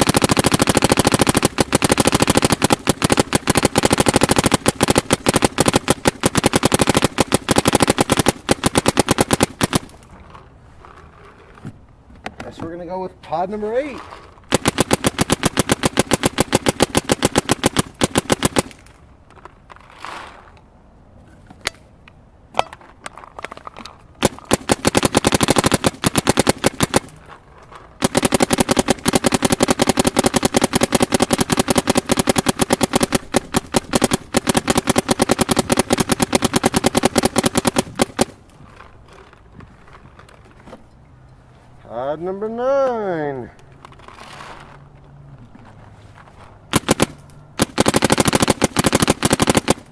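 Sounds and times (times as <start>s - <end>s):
paintball marker rapid firing: 0.0s - 10.0s, 14.5s - 19.0s, 24.2s - 27.2s, 28.0s - 38.4s, 46.7s - 49.9s.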